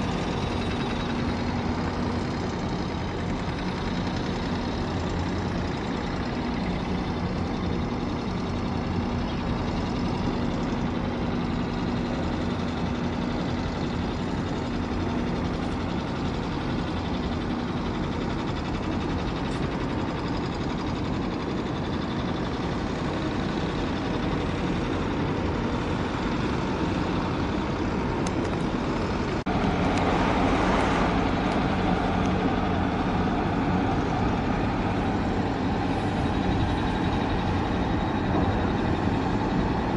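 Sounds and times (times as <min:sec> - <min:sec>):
low engine rumble: 0:00.0 - 0:39.9.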